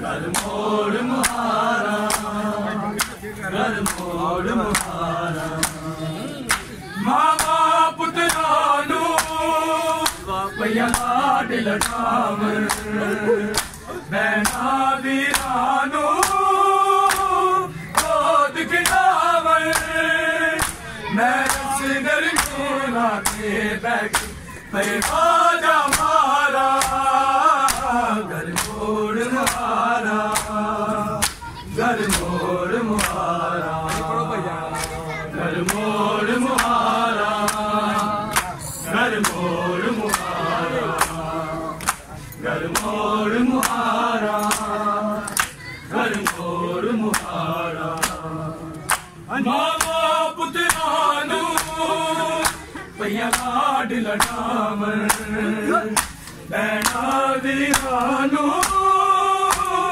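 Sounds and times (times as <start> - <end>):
men chanting in unison: 0.0 - 59.9
hands slapping bare chests: 0.3 - 0.6, 1.2 - 2.3, 3.0 - 3.2, 3.8 - 4.1, 4.7 - 5.8, 6.4 - 7.6, 8.2 - 9.4, 10.0 - 11.2, 11.8 - 14.7, 15.3 - 15.6, 17.1 - 18.2, 18.8 - 19.1, 19.7 - 20.0, 20.6 - 20.8, 21.4 - 21.7, 22.4 - 22.6, 23.2 - 23.4, 24.1 - 30.6, 31.2 - 32.3, 33.0 - 34.1, 35.6 - 35.9, 36.5 - 38.5, 40.1 - 41.2, 41.8 - 42.1, 42.7 - 43.0, 43.6 - 46.5, 47.1 - 47.4, 48.0 - 48.2, 48.8 - 49.1, 49.8 - 50.0, 50.7 - 50.9, 51.5 - 51.8, 53.3 - 53.6, 55.0 - 55.3, 56.0 - 59.8.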